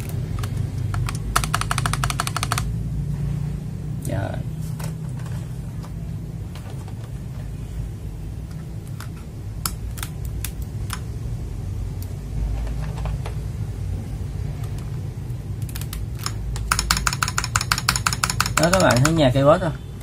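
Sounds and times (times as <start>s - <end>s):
mechanical keyboard keys clacking: 0.0s - 2.8s, 8.9s - 11.1s, 15.6s - 19.4s.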